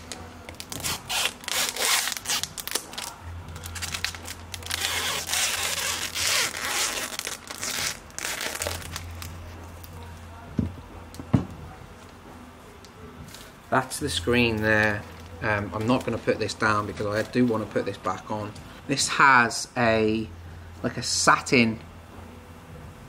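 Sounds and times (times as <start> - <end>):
packaging rustling: 0.0 - 10.0.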